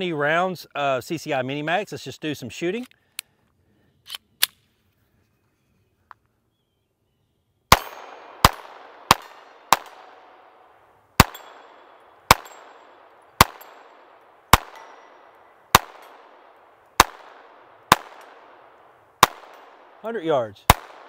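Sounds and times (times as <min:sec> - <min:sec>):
pistol shots with echo: 0:07.7 - 0:20.0, 0:20.7 - 0:21.0.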